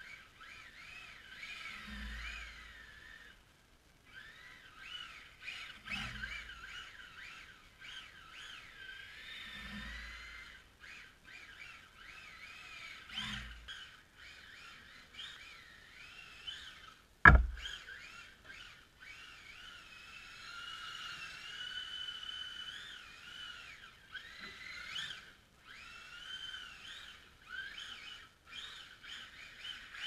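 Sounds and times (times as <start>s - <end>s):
rc car motor whining: 0.0s - 30.0s
sharp knock: 17.3s - 17.7s.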